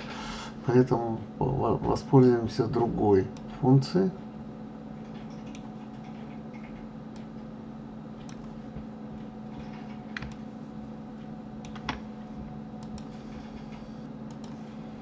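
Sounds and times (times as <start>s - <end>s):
computer keys and mouse clicks: 5.0s - 7.3s, 8.2s - 8.6s, 9.6s - 10.4s, 11.6s - 12.0s, 12.8s - 14.6s.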